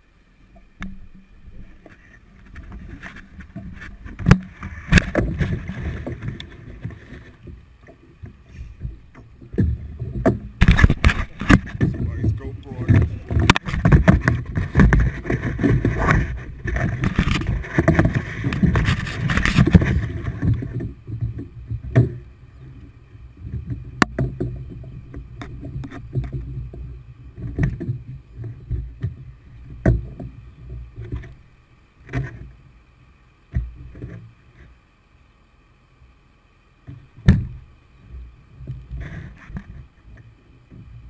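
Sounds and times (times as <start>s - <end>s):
bumps and knocks: 8.8s - 19.9s.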